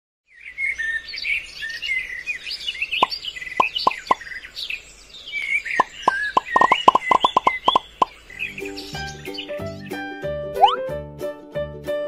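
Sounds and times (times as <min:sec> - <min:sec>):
birdsong chirping: 0:00.3 - 0:10.0
falling plop sound effects: 0:10.6 - 0:10.9.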